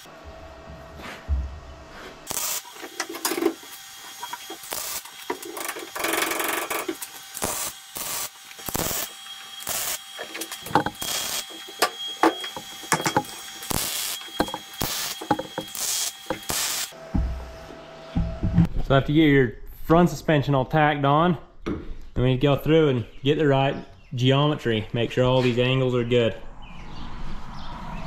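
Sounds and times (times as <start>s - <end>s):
welding crackle: 2.2s - 17.0s.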